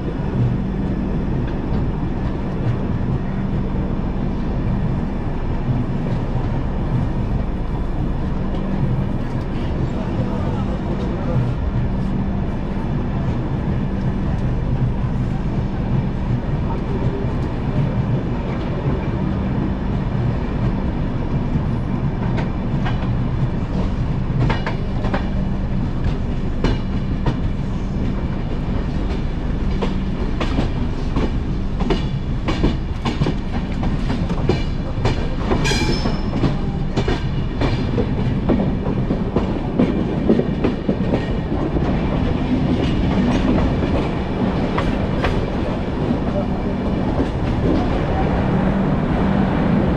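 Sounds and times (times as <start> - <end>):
train wheels rumbling: 0.0 - 49.9
wheels clacking over rail joints: 28.5 - 48.2.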